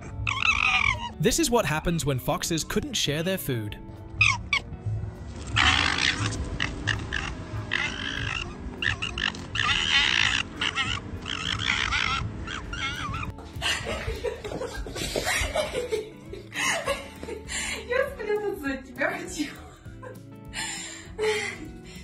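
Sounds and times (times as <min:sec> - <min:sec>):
foxes gekkering and screaming: 0:00.0 - 0:01.2, 0:04.2 - 0:04.7, 0:05.5 - 0:13.4.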